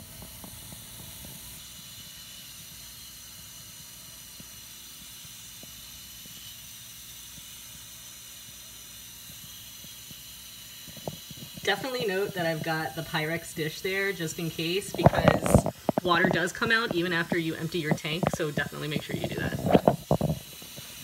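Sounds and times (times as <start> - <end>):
water hissing through valve: 0.0 - 21.0.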